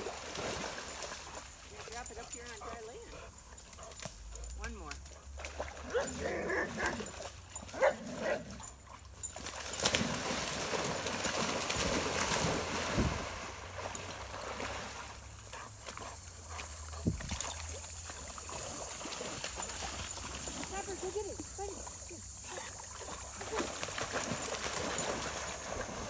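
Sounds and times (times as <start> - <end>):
dogs splashing in water: 0.0 - 26.0
dogs swimming sloshing: 0.0 - 26.0.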